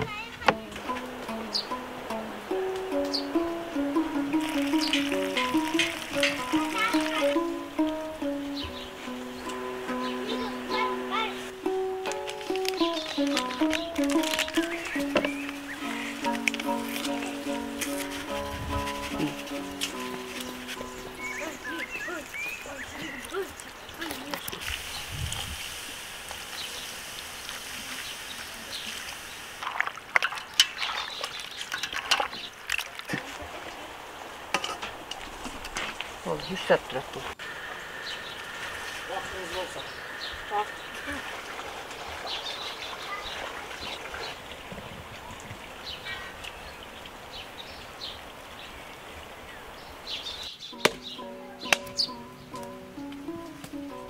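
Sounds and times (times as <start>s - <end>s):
plucked-string music: 0.0s - 23.5s, 50.6s - 54.0s
steady outdoor hiss: 0.0s - 54.0s
small birds chirping: 0.1s - 25.2s, 26.5s - 29.6s, 30.4s - 32.7s, 35.1s - 54.0s
carbonated water fizzing: 4.0s - 8.1s, 21.7s - 37.3s, 38.4s - 46.8s
dry deadwood cracking: 4.1s - 8.0s, 11.6s - 21.5s, 50.8s - 53.8s.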